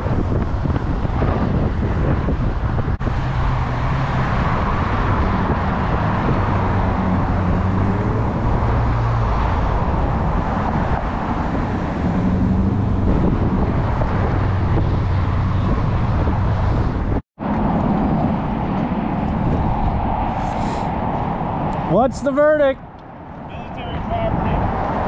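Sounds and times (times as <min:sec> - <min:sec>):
cars driving past: 0:00.0 - 0:25.0.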